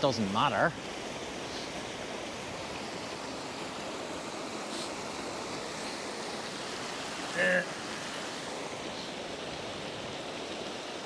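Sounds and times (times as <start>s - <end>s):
water rushing over rocks: 0.0s - 11.0s.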